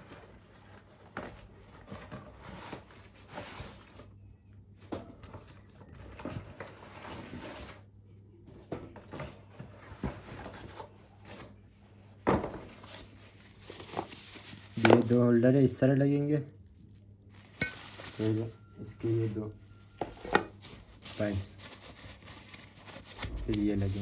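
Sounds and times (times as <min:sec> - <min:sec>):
plastic packaging rustling: 0:12.6 - 0:19.6, 0:20.2 - 0:24.0.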